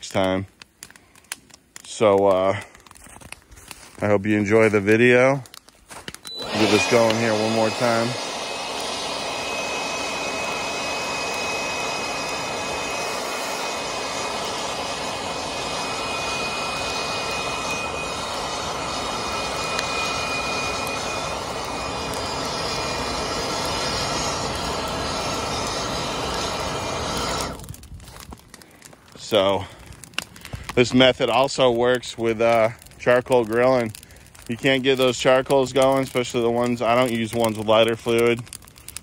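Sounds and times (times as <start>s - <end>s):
leaf blower running: 6.3s - 28.9s.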